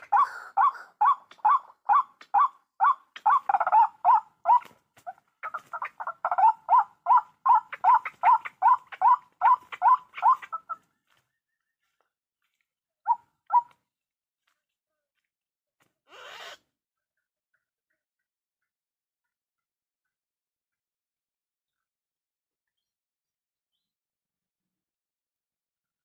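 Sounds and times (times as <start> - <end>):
waterhen calling: 0.0 - 4.8, 5.4 - 10.8.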